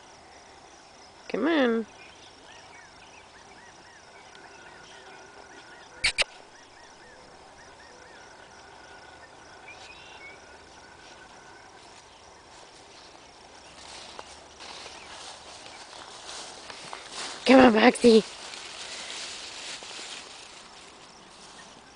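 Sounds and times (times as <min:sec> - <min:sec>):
high chirping call: 0:04.7 - 0:08.4
sharp clicks: 0:06.0 - 0:06.3.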